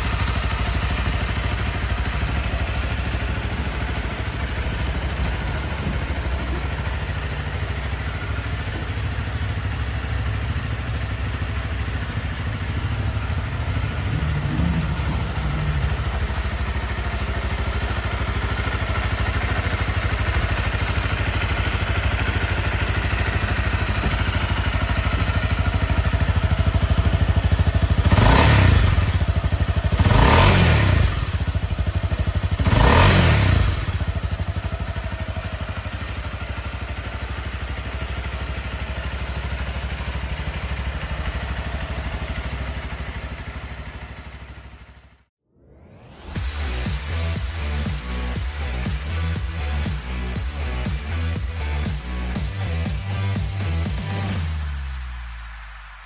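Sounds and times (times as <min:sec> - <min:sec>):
engine revving: 0:00.0 - 0:34.4, 0:45.5 - 0:56.0
motorcycle engine idling: 0:00.0 - 0:45.3, 0:46.1 - 0:55.0.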